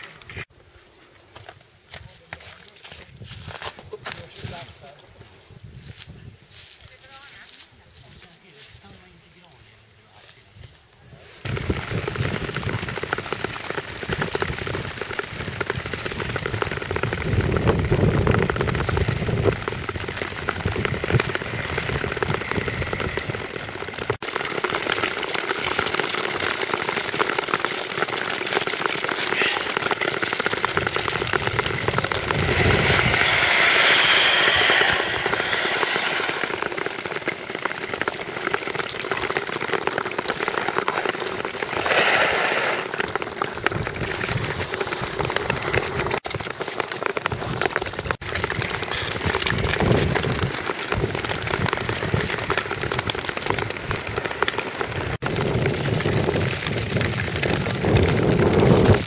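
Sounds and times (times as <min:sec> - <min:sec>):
skate blades scraping on ice: 0:16.4 - 0:57.0.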